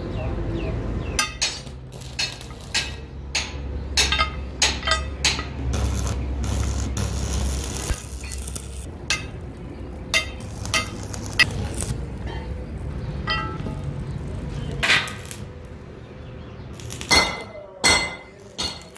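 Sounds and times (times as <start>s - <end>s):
hammer striking metal: 1.2s - 5.7s, 9.1s - 9.4s, 10.1s - 11.5s, 13.2s - 13.9s, 14.8s - 15.4s, 17.0s - 18.9s.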